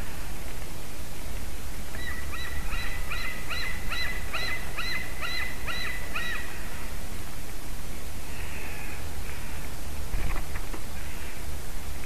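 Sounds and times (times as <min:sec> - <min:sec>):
low background hiss: 0:00.0 - 0:12.0
cranes calling: 0:01.9 - 0:06.9, 0:08.2 - 0:09.8.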